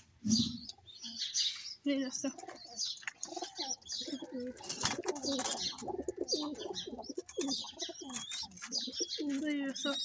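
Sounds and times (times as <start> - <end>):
pigeons cooing: 2.1 - 10.0.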